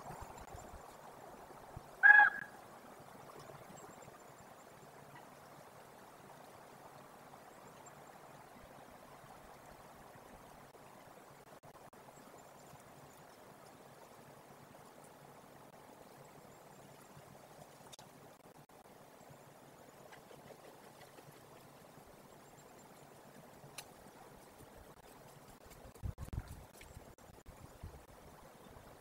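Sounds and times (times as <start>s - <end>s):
faint steady background hiss: 0.0s - 29.0s
raven honking call: 2.0s - 2.6s.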